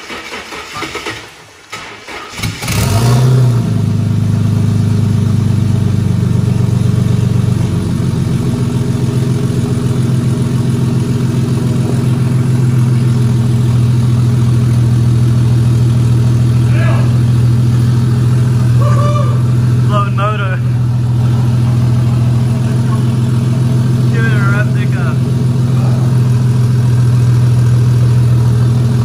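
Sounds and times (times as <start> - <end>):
car engine idling: 0.0 - 29.0.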